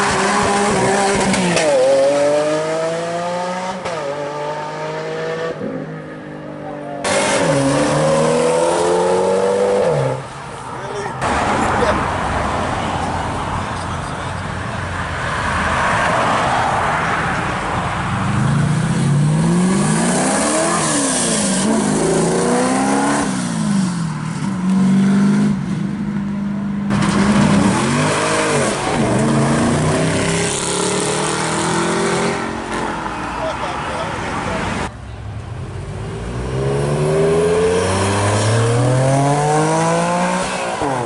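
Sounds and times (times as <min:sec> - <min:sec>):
car engine revving: 0:26.9 - 0:33.5, 0:35.6 - 0:41.0
another car engine revving: 0:35.8 - 0:41.0.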